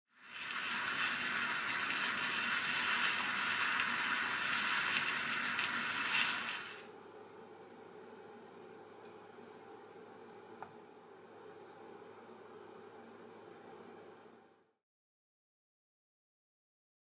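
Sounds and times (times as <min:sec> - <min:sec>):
mushrooms sizzling in a frying pan: 0:00.1 - 0:06.9.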